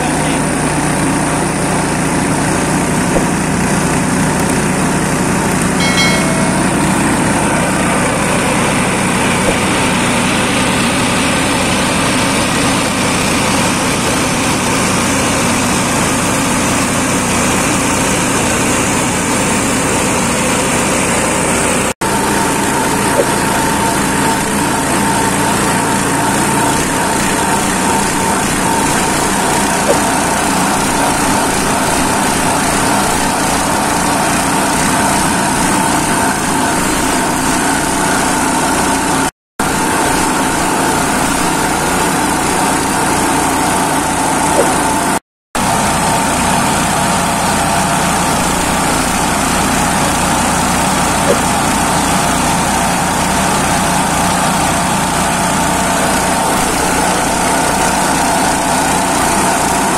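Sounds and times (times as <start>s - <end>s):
small petrol engine running: 0.0s - 59.9s
steady high whine: 1.5s - 17.7s.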